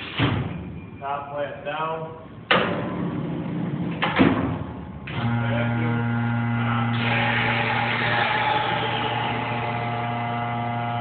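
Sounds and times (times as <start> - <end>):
motor hum: 5.0 - 11.0.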